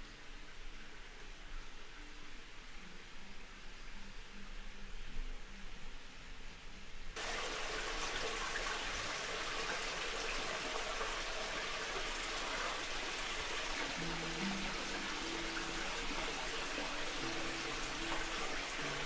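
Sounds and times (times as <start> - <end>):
quiet water hiss: 0.0 - 19.0
running water rushing: 7.2 - 19.0.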